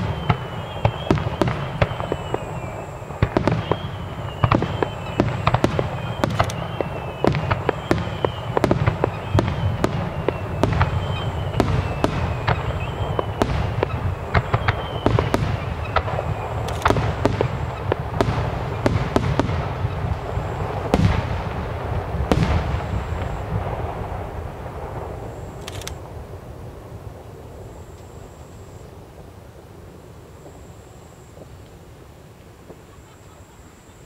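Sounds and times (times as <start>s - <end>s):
firework shells bursting: 0.0s - 26.2s
falling firework whistles: 0.0s - 34.0s.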